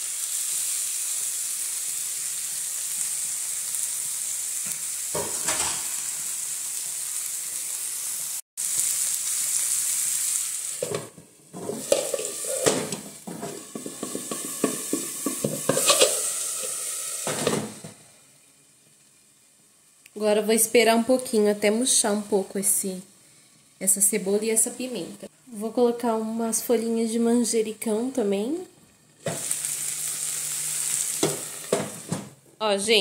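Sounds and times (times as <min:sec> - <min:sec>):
food sizzling in a frying pan: 0:00.0 - 0:33.0
pan and glass lid rattling: 0:10.8 - 0:16.3.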